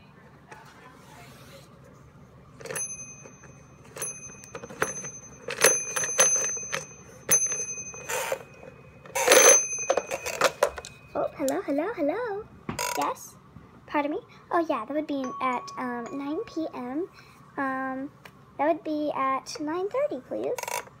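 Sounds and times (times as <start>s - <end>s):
handling noise: 2.6s - 11.3s
toy telephone bell dinging: 2.6s - 11.5s, 15.2s - 16.8s.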